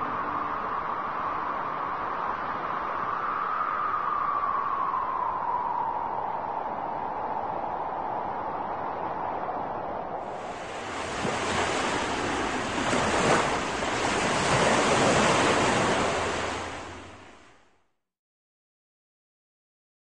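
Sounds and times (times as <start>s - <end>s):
wind: 0.0s - 18.0s
waves breaking: 10.2s - 17.6s.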